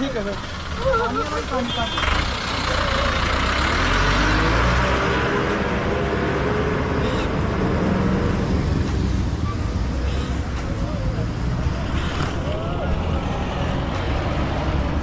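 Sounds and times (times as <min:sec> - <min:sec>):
low traffic rumble: 0:00.0 - 0:15.0
vehicle passing by: 0:00.2 - 0:15.0.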